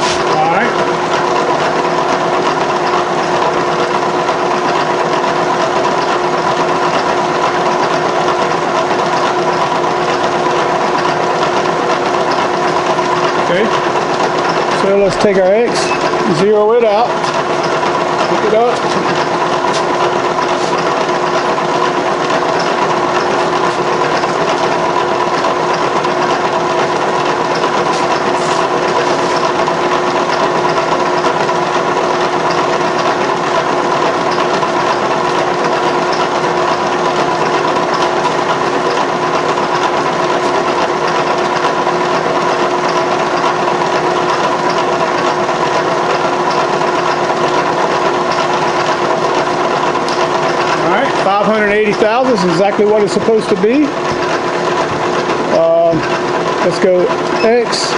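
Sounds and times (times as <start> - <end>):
milling machine motor hum: 0.0 - 57.9.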